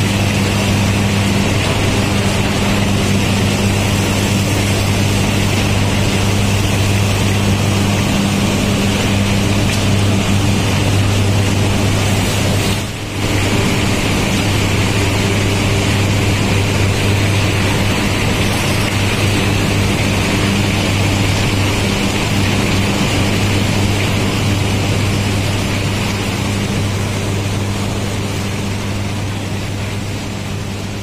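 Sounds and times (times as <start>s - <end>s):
mill machinery drone: 0.0s - 31.0s.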